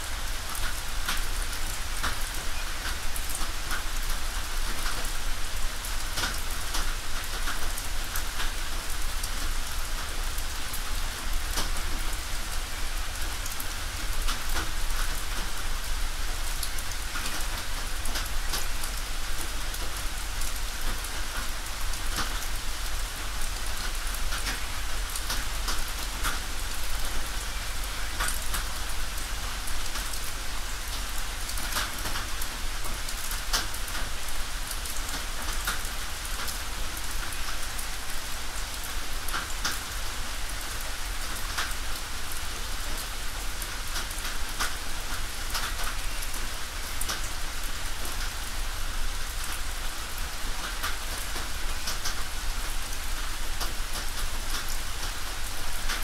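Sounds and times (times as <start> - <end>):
rain on a tin roof: 0.0 - 56.0.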